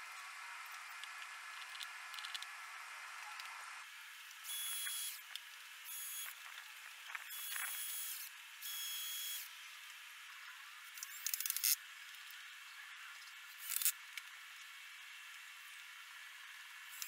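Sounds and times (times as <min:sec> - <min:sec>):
cordless drill driving screws: 0:04.5 - 0:05.2, 0:07.3 - 0:09.5.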